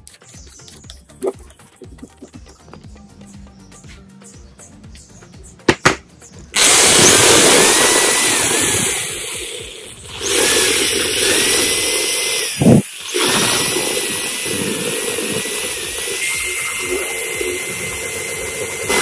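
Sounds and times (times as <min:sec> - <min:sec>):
loud knock: 0:05.7 - 0:06.0
cordless drill whining under load: 0:06.6 - 0:19.0.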